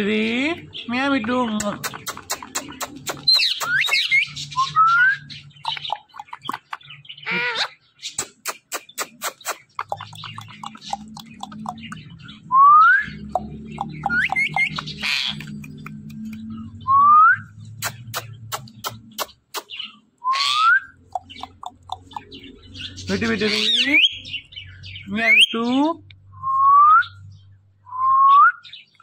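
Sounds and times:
sharp clicks: 1.6 - 4.1, 8.2 - 12.2, 13.3 - 16.5, 17.8 - 19.8, 21.1 - 22.4
parakeet squawks: 1.9 - 12.0, 13.7 - 15.6, 17.8 - 24.4.

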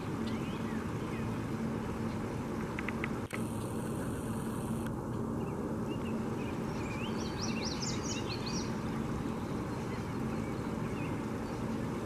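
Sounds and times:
songbird chirping: 0.0 - 2.3, 5.4 - 12.0
rushing outdoor background noise: 0.0 - 12.0.

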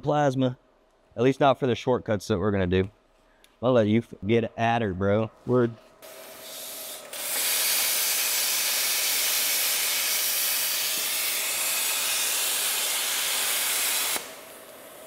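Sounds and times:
plasma cutter hissing: 6.0 - 15.0.

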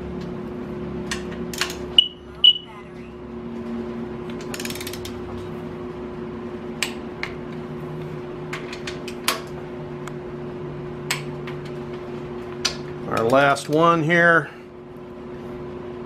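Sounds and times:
shop fan humming: 0.0 - 16.0.

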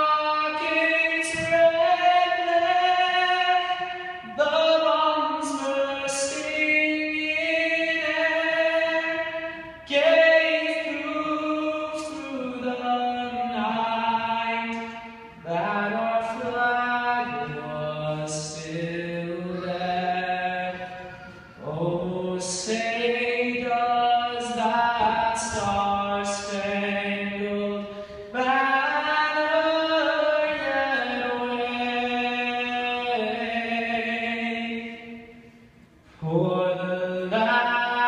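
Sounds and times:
man singing solo: 0.0 - 35.4
singer breathing: 27.8 - 28.4.

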